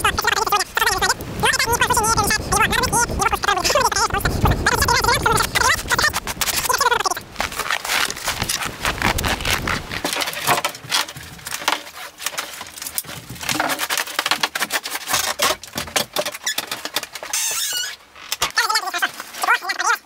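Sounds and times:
handling clicks and knocks: 7.4 - 17.4.

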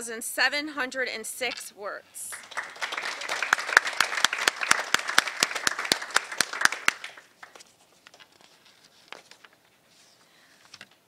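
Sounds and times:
audience applauding: 2.3 - 7.7.

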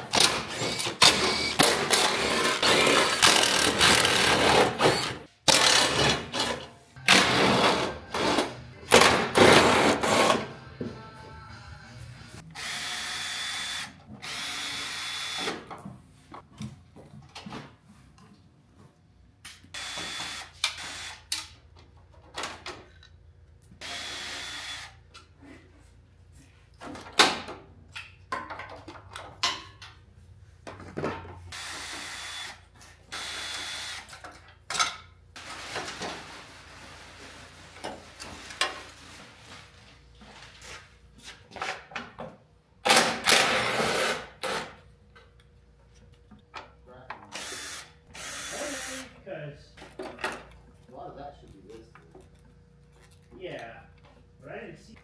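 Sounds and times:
power drill whirring: 0.4 - 5.6, 12.6 - 15.6, 19.8 - 21.2, 23.8 - 25.0, 31.6 - 34.1, 47.3 - 49.1.

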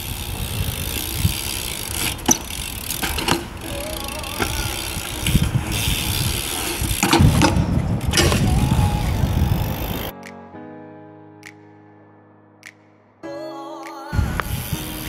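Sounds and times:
bike tyres rolling on concrete: 0.0 - 10.1
bike knocking on concrete: 1.0 - 8.6.

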